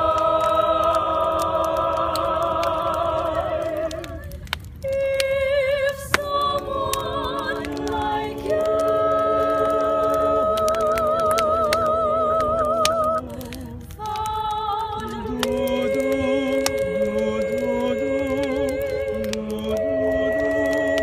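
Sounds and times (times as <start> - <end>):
voices singing unaccompanied: 0.0 - 21.0
wood fire crackling and popping: 0.0 - 21.0.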